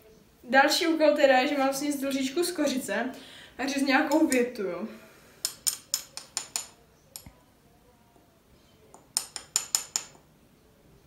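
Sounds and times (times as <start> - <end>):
spice jar clinking on metal spoon: 5.4 - 7.3, 9.0 - 10.2.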